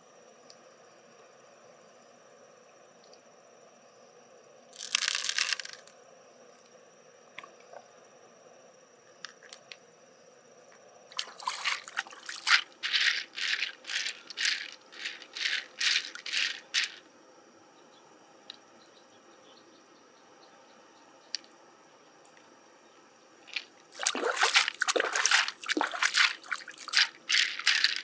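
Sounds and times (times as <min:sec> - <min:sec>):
pearls rattling: 0:04.8 - 0:05.9, 0:11.2 - 0:17.0, 0:23.5 - 0:28.0.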